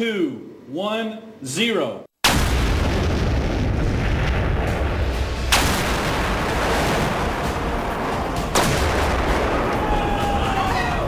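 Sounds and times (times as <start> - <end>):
sharp explosion blasts: 2.2 - 10.3
deep explosion rumble: 2.3 - 10.4.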